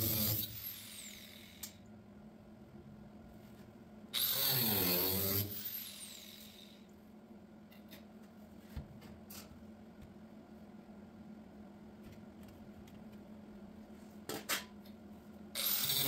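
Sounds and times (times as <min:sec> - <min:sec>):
power tool whirring: 0:00.0 - 0:01.7, 0:04.2 - 0:06.8, 0:15.6 - 0:16.0.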